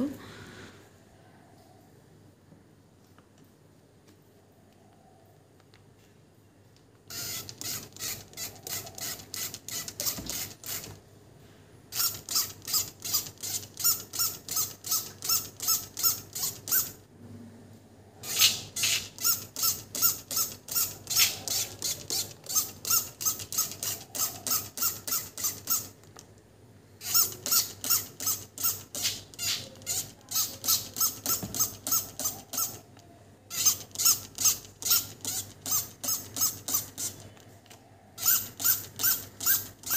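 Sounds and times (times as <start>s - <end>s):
spray bottle spritzing: 18.3s - 19.2s.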